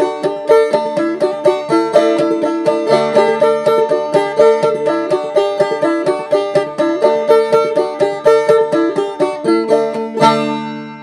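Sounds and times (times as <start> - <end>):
banjo picking: 0.0 - 11.0.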